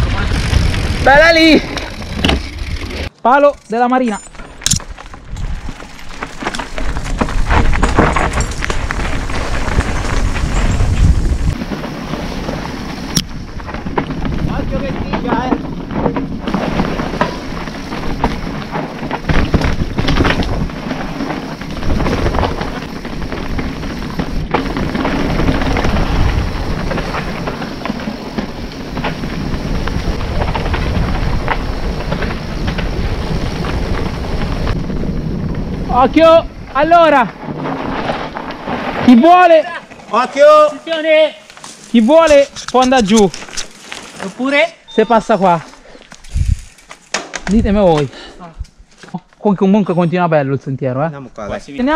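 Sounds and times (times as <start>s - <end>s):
wind rumble on microphone: 0.0s - 2.9s, 4.6s - 39.1s, 46.2s - 46.8s
tyres over dirt and stones: 0.0s - 49.6s
bike rattling: 0.0s - 50.0s
wind on microphone: 6.8s - 11.6s, 46.2s - 46.8s.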